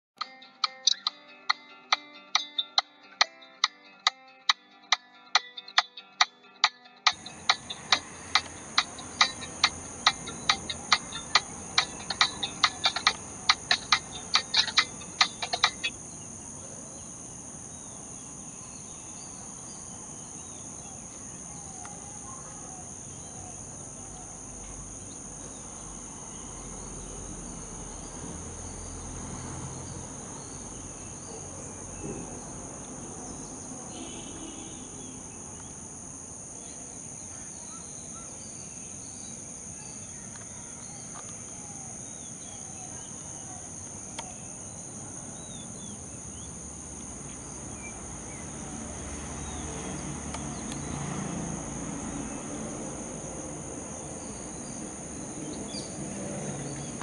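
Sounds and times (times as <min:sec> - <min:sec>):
faint bird chirps: 0:07.0 - 0:27.4, 0:30.4 - 0:35.8
crickets or cicadas droning: 0:07.1 - 0:57.0.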